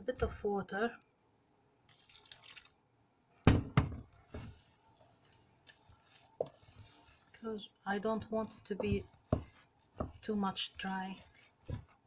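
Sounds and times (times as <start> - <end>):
water pouring into a metal bowl: 1.9 - 2.8
wooden spatula scraping metal bowl: 4.1 - 12.0.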